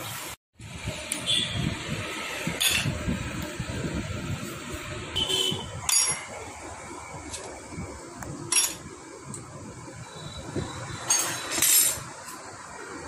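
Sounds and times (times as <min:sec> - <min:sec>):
metal tools clinking: 0:05.9 - 0:06.4, 0:08.5 - 0:08.9, 0:11.0 - 0:12.1.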